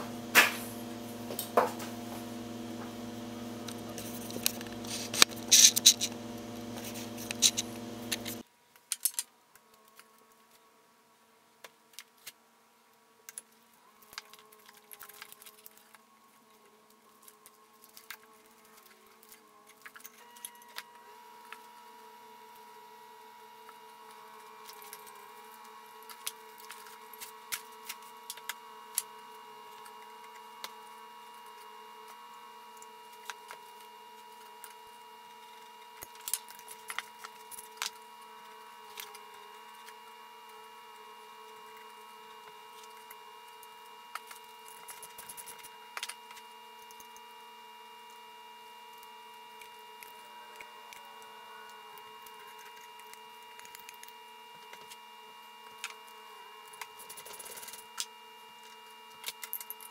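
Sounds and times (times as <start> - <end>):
steady background hum: 0.0 - 8.4.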